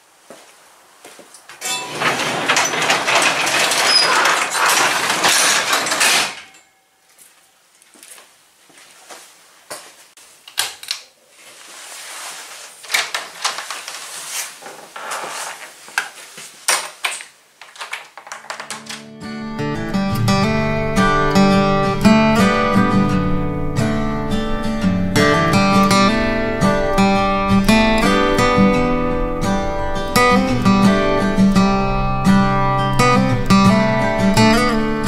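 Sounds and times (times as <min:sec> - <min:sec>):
garage door rattling shut: 0:01.6 - 0:06.7, 0:16.7 - 0:19.2
clicks and knocks: 0:01.6 - 0:06.8, 0:16.0 - 0:19.2.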